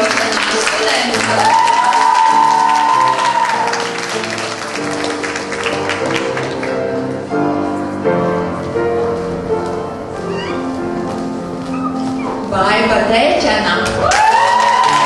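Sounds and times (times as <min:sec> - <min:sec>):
audience applauding: 0:00.0 - 0:07.0, 0:14.0 - 0:15.0
instrumental music: 0:00.0 - 0:15.0.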